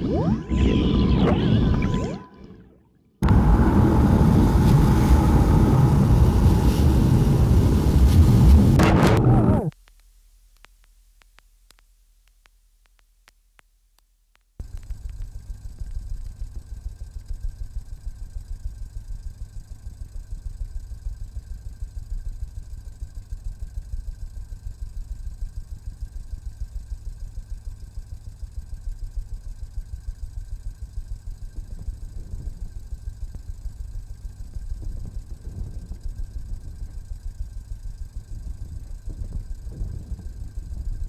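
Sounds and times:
faint high tones: 0.0 - 4.6
low pulsing electronic rumble: 0.0 - 9.8, 14.6 - 41.0
faint clicks: 9.7 - 16.5.

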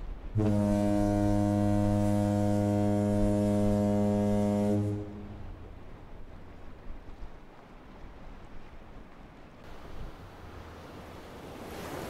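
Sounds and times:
ship's horn blast: 0.3 - 6.0.

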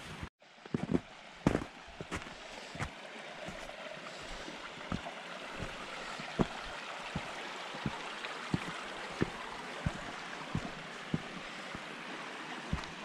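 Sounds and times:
stream rushing: 0.5 - 13.0
footsteps on rock: 5.6 - 11.9, 12.7 - 13.0.

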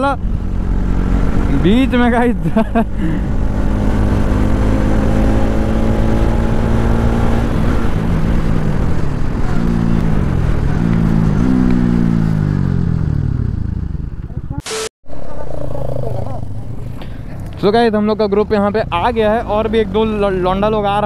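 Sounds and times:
motorcycle engine revving and downshifting: 0.4 - 2.0, 2.8 - 13.9.

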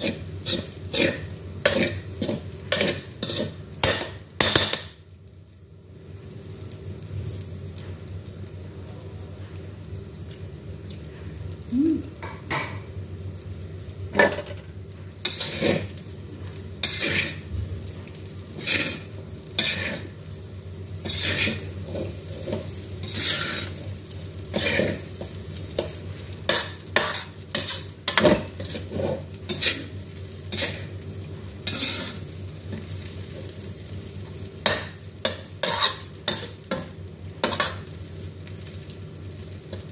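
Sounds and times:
metal spatula scraping wok: 0.0 - 4.8, 15.2 - 16.0, 16.8 - 17.5, 18.5 - 20.2, 21.0 - 23.9, 24.5 - 30.9, 31.6 - 32.9, 34.6 - 36.8, 37.4 - 37.9
frying sizzle: 0.0 - 39.9.

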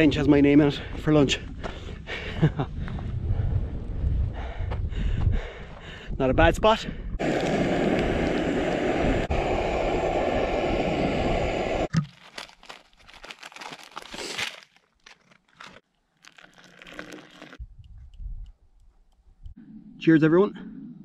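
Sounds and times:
water pouring into cup: 16.1 - 17.6.

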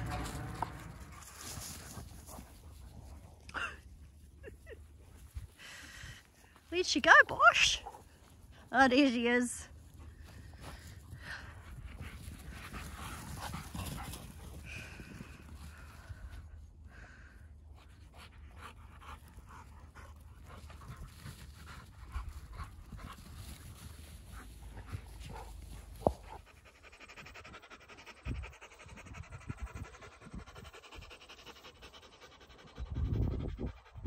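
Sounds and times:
dull low bumps: 0.0 - 3.4
dogs panting: 0.0 - 34.0.

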